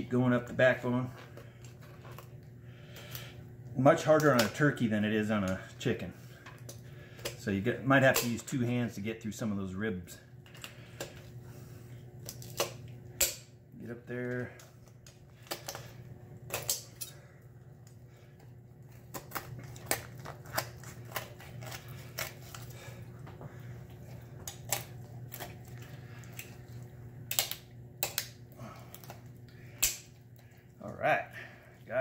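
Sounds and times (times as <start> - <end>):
low steady hum: 0.0 - 32.0
kitchen shears cutting bones: 18.9 - 23.2, 24.0 - 26.7.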